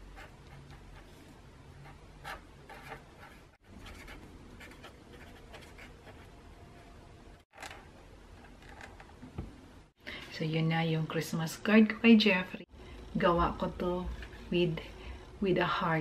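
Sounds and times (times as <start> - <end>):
marker pen scratching on card: 1.8 - 6.3.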